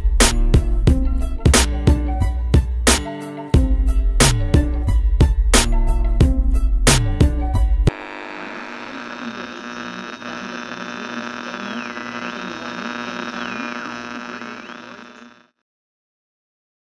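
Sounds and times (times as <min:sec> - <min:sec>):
music with a beat: 0:00.0 - 0:07.9
electronic hum with held tones: 0:07.9 - 0:15.6.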